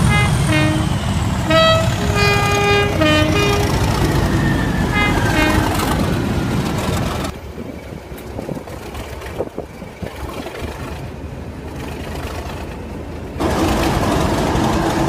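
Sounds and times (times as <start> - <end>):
loud steady noise: 0.0 - 7.4, 13.4 - 15.0
model train rumble: 0.0 - 15.0.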